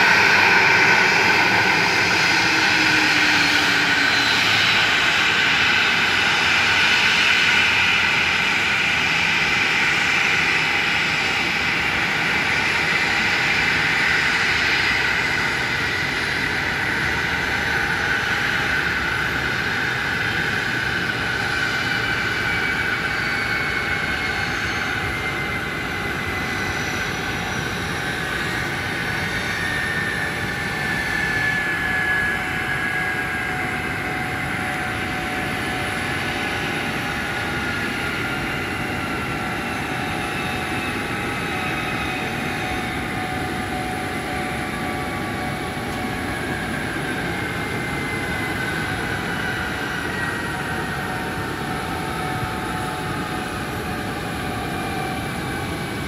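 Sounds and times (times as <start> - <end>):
jet engines idling: 0.0 - 56.0.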